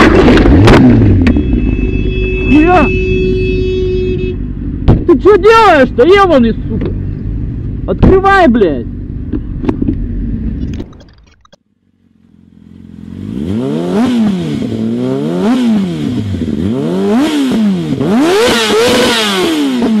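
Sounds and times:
motorcycle engine revving: 0.0s - 5.0s, 11.9s - 20.0s
traffic noise: 0.0s - 20.0s.

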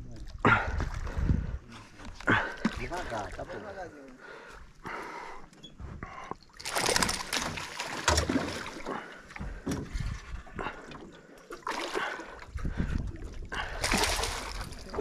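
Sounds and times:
fish thrashing and splashing: 6.5s - 15.0s.

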